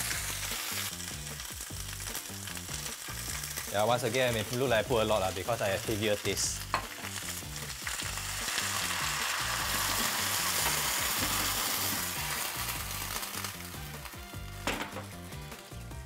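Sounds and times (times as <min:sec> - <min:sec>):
vegetables sizzling in frying pan: 0:00.0 - 0:15.8.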